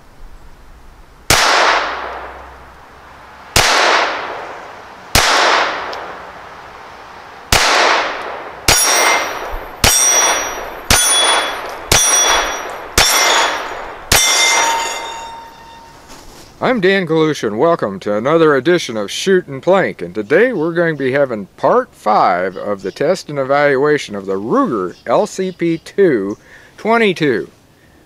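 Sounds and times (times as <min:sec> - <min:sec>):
gunshots: 0:01.3 - 0:02.4, 0:03.5 - 0:06.3, 0:07.5 - 0:15.5
steel gong ringing: 0:08.7 - 0:16.0.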